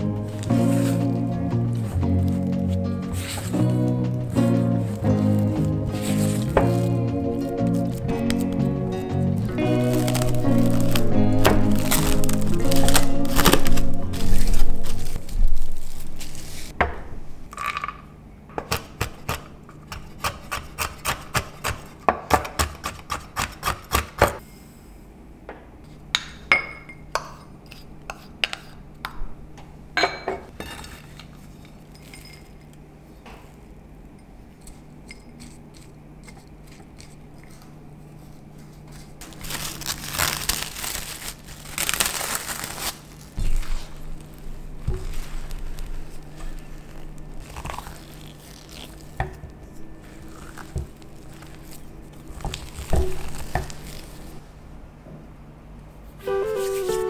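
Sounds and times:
glass bowls clinking: 30.0 - 30.5, 31.8 - 32.8.

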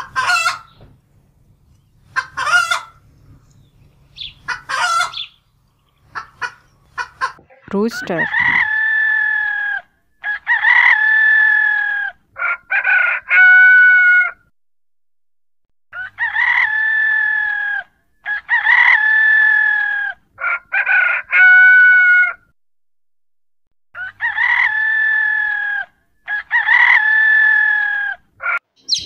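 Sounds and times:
rooster crowing: 8.0 - 14.4, 15.9 - 22.5, 24.0 - 28.6.

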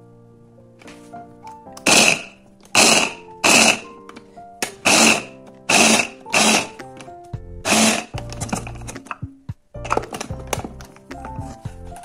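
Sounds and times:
electric mini chopper pulsing: 1.9 - 3.8, 4.8 - 6.7, 7.6 - 8.1.

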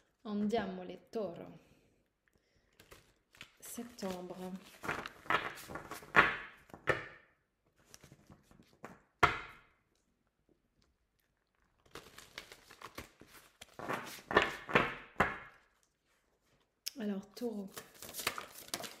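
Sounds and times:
cards being shuffled: 2.8 - 7.2, 7.8 - 9.0, 11.8 - 15.6, 17.6 - 19.0.

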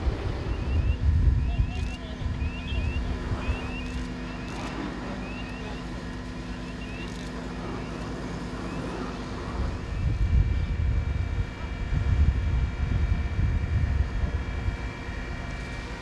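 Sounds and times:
wind buffeting microphone: 0.0 - 4.2, 8.4 - 16.0
vehicle engine hum: 0.0 - 16.0.

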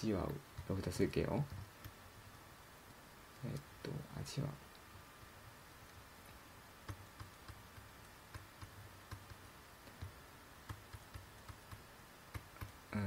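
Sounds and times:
faint low hum: 0.0 - 13.0
stylus tapping pen tablet: 0.2 - 2.0, 5.8 - 12.8.

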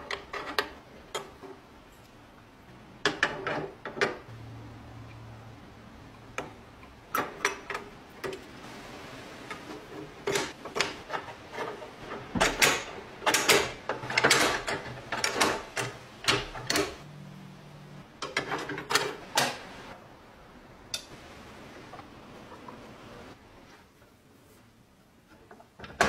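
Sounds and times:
metal lock parts clicking: 12.4 - 17.0.

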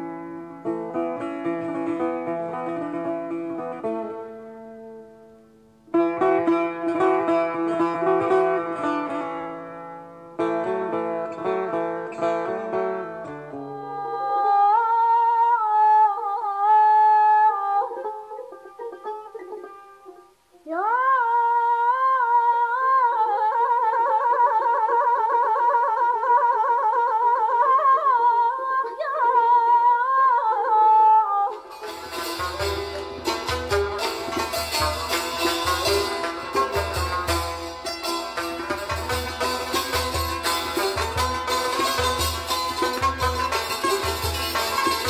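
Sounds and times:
plucked string instrument: 0.0 - 21.1, 31.4 - 45.0.

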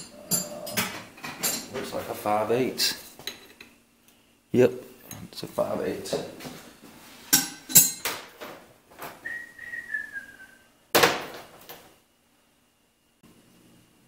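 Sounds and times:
hand tools clinking: 0.0 - 1.9, 7.3 - 8.2
whistled note: 9.2 - 10.7.

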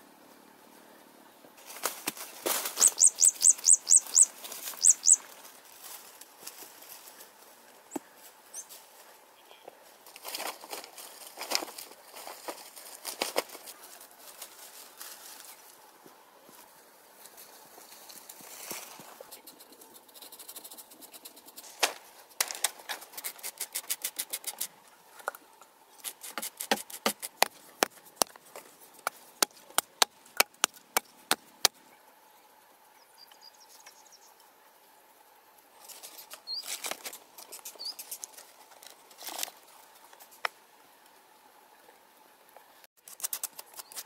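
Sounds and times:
hand tool scraping earth: 18.0 - 31.4, 35.8 - 40.5, 43.0 - 44.0
hand tool clicking on dry earth: 19.4 - 25.3, 26.0 - 31.8, 43.0 - 44.0.

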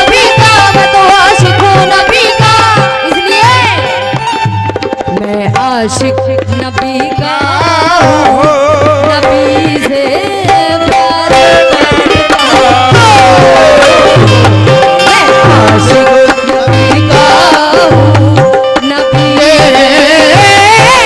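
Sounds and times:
harmonium chords: 0.0 - 21.0
sliding melody line: 0.0 - 21.0
tabla drumming: 0.0 - 21.0.

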